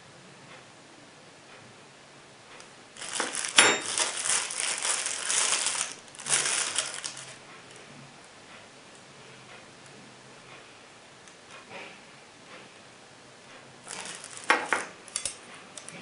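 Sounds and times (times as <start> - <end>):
plastic bags crinkling: 3.0 - 7.4, 13.9 - 15.3
metal cutlery clink: 3.5 - 4.2, 14.5 - 15.9.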